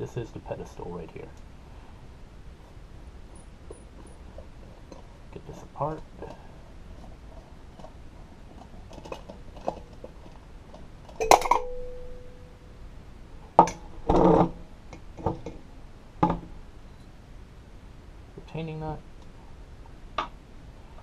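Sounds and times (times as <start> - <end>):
metal parts clinking and knocking: 11.1 - 11.8
sharp ringing metal strike: 11.2 - 12.7.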